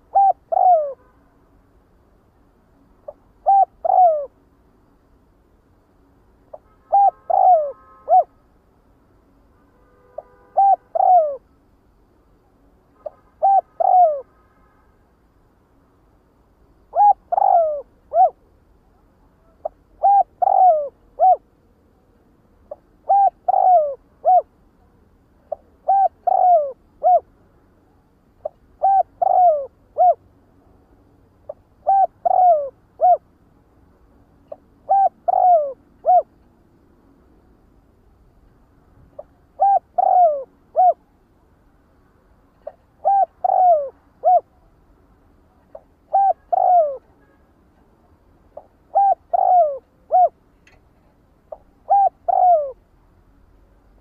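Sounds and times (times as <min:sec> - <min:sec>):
dove cooing: 0:00.0 - 0:01.0, 0:03.0 - 0:04.4, 0:06.9 - 0:08.3, 0:10.6 - 0:11.4, 0:13.4 - 0:14.3, 0:16.9 - 0:18.4, 0:19.6 - 0:21.5, 0:22.7 - 0:24.5, 0:25.5 - 0:27.3, 0:28.4 - 0:30.2, 0:31.5 - 0:33.2, 0:34.8 - 0:36.3, 0:39.2 - 0:41.0, 0:42.6 - 0:44.6, 0:45.7 - 0:47.0, 0:48.6 - 0:50.4, 0:51.5 - 0:52.8.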